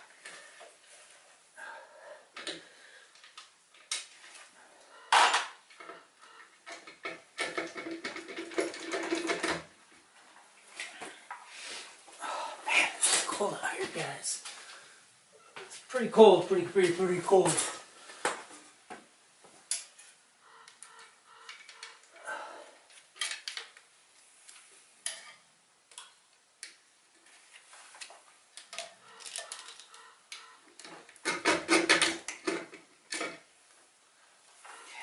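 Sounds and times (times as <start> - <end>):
clinks and clanks of parts: 5.1 - 9.8, 19.7 - 22.2, 22.9 - 23.9, 25.0 - 27.3, 28.5 - 33.5.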